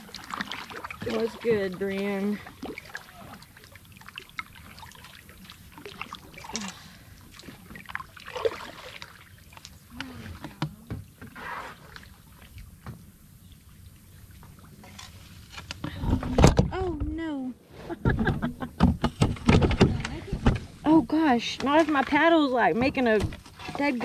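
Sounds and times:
paddle strokes in water: 0.0 - 16.4
paddle knocking plastic hull: 18.0 - 20.7.

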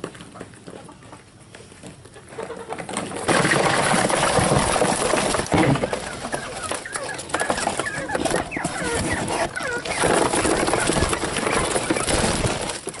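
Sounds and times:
quail scrambling in a box: 0.0 - 13.0
young quail chirping: 5.7 - 12.6.

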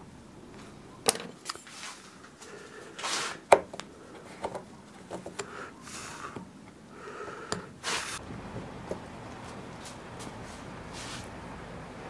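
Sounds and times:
wood scraping strokes: 7.8 - 11.4.

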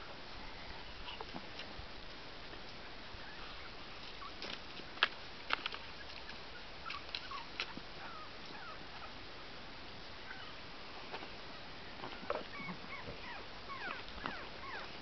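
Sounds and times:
dog whimpers: 6.9 - 9.1, 12.2 - 15.0.

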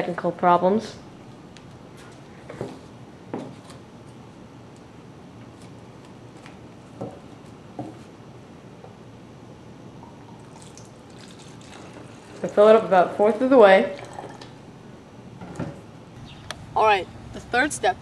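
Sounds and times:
steady low hiss: 12.6 - 18.0.

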